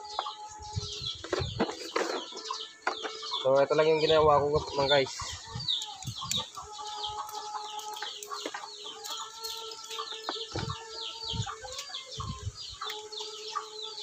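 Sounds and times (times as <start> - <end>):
chickens clucking: 0.0 - 14.0.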